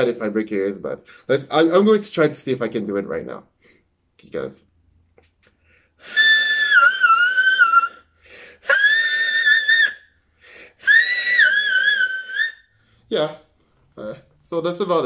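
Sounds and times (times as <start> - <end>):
man breathing: 5.5 - 6.0, 8.1 - 8.6, 10.3 - 10.8.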